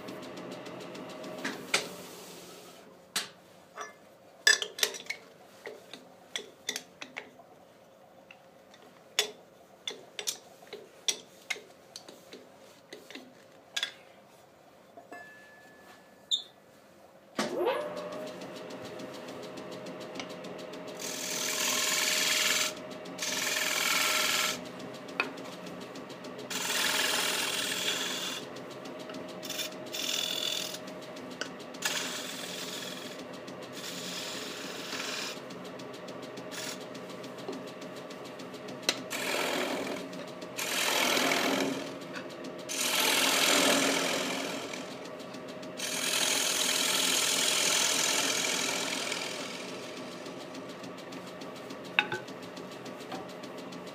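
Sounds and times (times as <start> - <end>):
lathe motor hum: 17.8 - 53.9
gouge cutting spinning wood: 21.0 - 45.1, 45.8 - 50.9.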